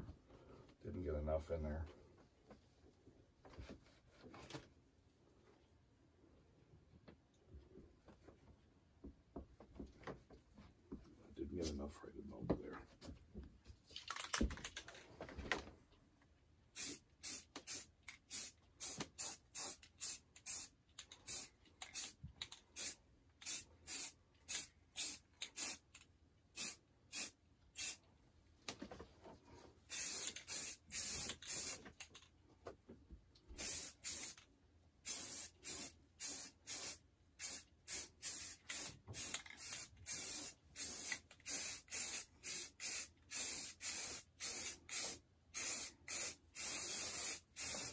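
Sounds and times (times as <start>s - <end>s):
aerosol spray can spraying: 16.8s - 22.2s, 22.8s - 25.9s, 26.6s - 28.0s, 29.9s - 31.8s, 33.6s - 34.4s, 35.0s - 47.9s.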